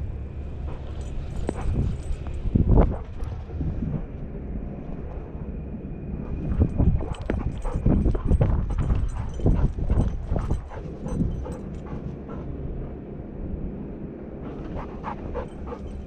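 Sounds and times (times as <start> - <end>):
wind on microphone: 1.4 - 16.0
dog paws striking dirt: 6.3 - 12.5.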